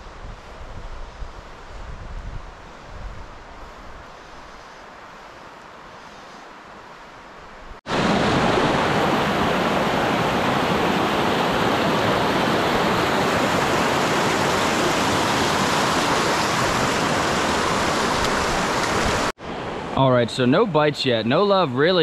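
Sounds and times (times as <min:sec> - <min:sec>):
creek rushing over rocks: 0:07.9 - 0:20.9.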